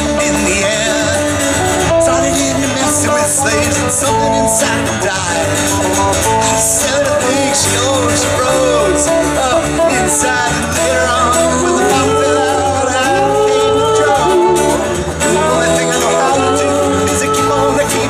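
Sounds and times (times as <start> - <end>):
lead guitar line bending: 0.0 - 18.0
live rock band playing: 0.0 - 18.0.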